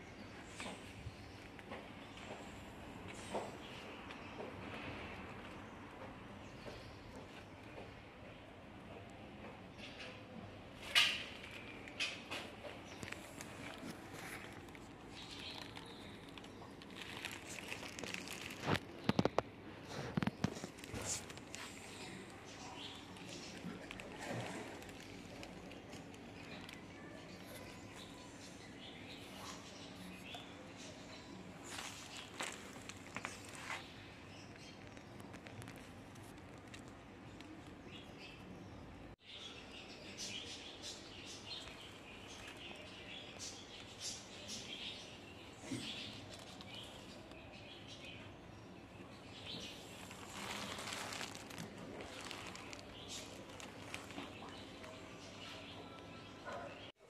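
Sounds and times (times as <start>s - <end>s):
birds chirping: 0.0s - 57.0s
rustling and handling noise: 10.7s - 38.3s, 49.4s - 56.2s.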